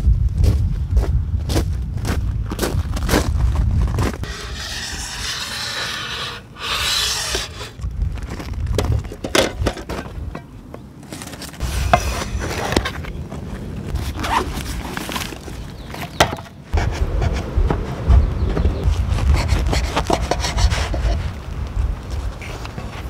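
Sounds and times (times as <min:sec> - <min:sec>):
pan scraping on grill grate: 0:04.2 - 0:07.8, 0:11.6 - 0:13.1.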